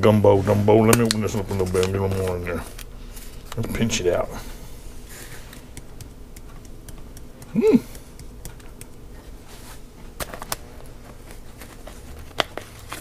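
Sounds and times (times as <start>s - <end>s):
spice shaker clicking: 5.6s - 9.1s
person humming: 6.6s - 8.9s.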